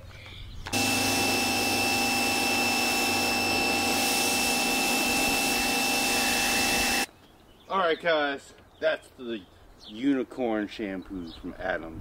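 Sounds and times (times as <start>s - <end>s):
pressure washer motor whine: 0.7s - 7.1s
pressure washer spray hiss: 0.8s - 7.1s.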